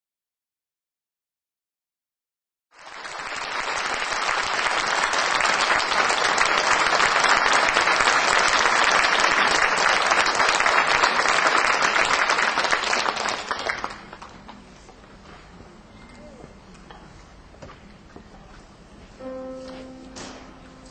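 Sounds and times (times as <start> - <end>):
audience applauding: 2.8 - 14.7.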